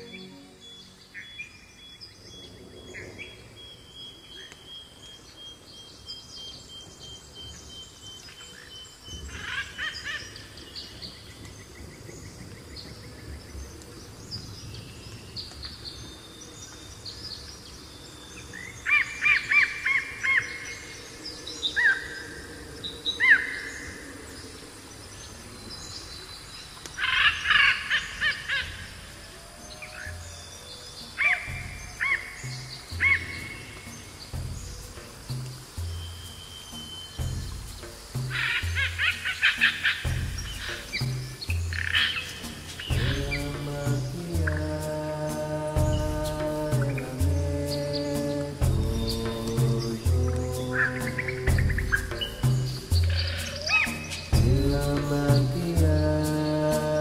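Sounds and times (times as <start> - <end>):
birds calling and chirping: 0.0 - 57.0
low background hush: 29.1 - 57.0.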